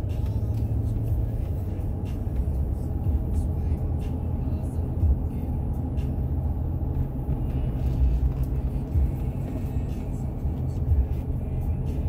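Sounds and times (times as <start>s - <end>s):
car driving from inside cabin: 0.0s - 12.0s.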